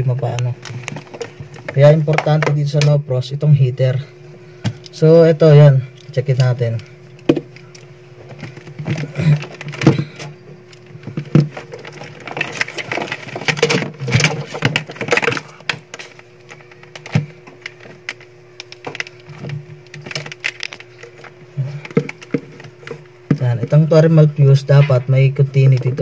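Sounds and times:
faint steady hum: 0:00.0 - 0:26.0
plastic clicks and knocks: 0:21.8 - 0:23.8.

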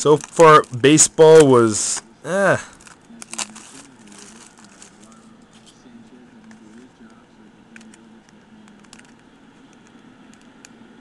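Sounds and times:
cellophane wrap crinkling: 0:00.0 - 0:00.8, 0:02.7 - 0:05.8.

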